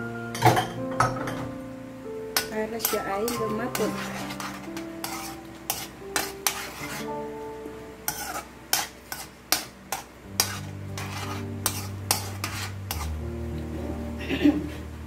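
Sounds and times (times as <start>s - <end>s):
spatula scraping metal pan: 2.4s - 7.2s, 8.1s - 13.2s.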